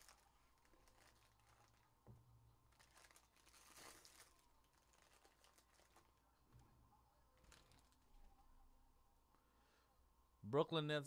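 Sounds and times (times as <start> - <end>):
foil wrapper crinkling and tearing: 0.0 - 2.0, 2.6 - 6.2, 7.4 - 8.2.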